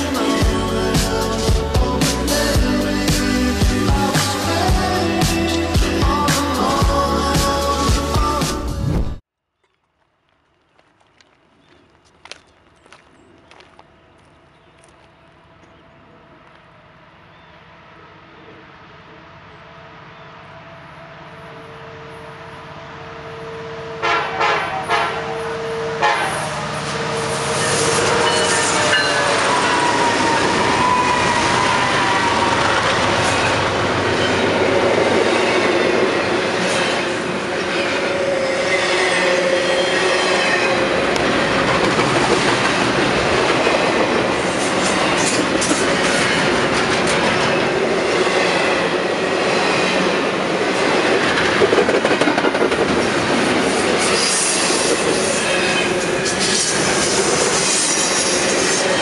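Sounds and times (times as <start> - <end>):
diesel locomotives passing: 12.7 - 59.0
train wheels clacking over rails: 41.1 - 49.0, 50.9 - 59.0.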